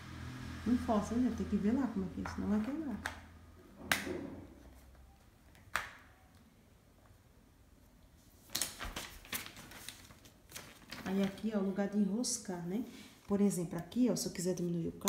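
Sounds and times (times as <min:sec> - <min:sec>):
paper rustling: 0:08.2 - 0:11.7.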